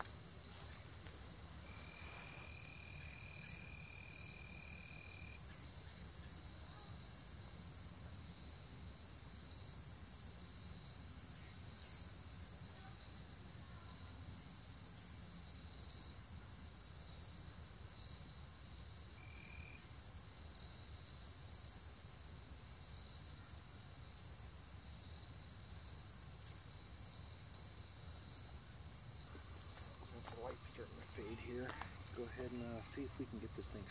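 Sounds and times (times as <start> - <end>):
insects chirping: 0.0 - 33.9.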